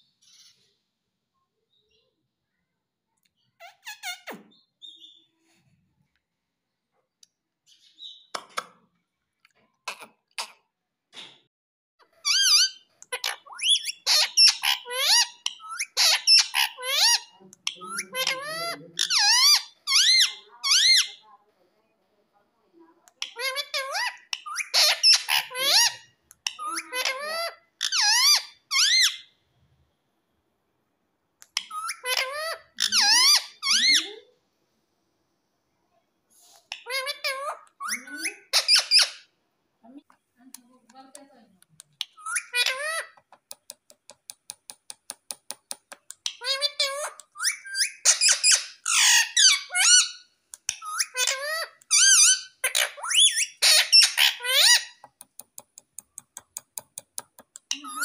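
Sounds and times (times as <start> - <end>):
parakeet shrill calls: 12.2 - 21.2, 23.2 - 29.3, 31.6 - 34.2, 36.7 - 39.3, 42.0 - 43.2, 46.3 - 55.0.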